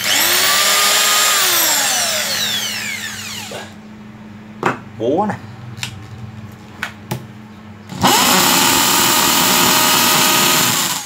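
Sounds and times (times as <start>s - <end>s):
hammer drill running: 0.0s - 3.7s, 7.9s - 11.0s.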